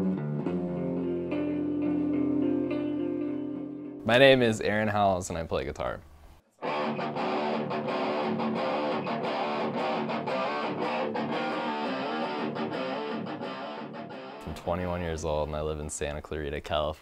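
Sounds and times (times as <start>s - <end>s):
electric guitar run: 6.6s - 14.5s.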